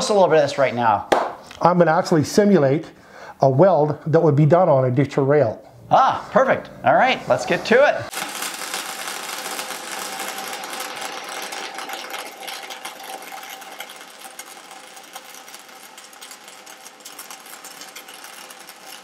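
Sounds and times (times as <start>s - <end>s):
welding arc crackling: 8.1s - 19.0s.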